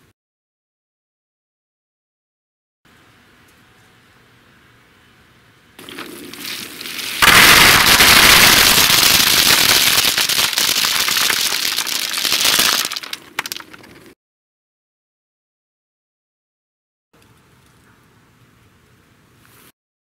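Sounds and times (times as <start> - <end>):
nuts clattering into basket: 7.4 - 14.1.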